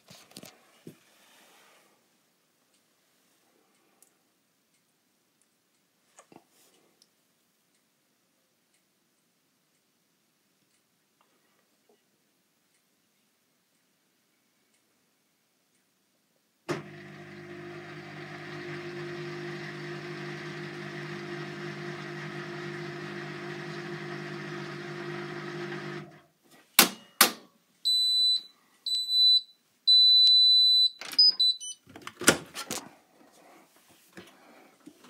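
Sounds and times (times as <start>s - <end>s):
washing machine humming: 16.7s - 26.2s.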